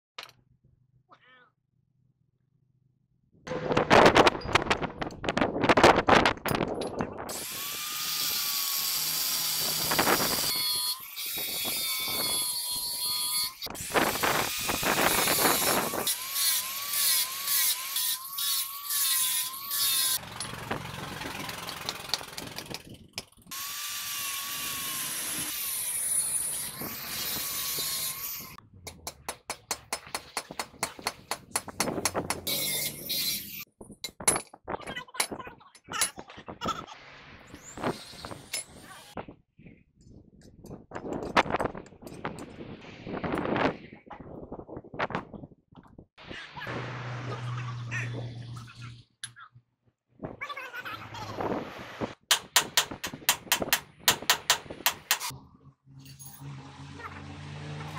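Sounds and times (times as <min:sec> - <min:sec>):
angle grinder grinding steel: 0:07.3 - 0:22.8, 0:23.5 - 0:28.6, 0:32.4 - 0:33.7
sharp metal knocks: 0:28.8 - 0:33.0, 0:52.3 - 0:55.3.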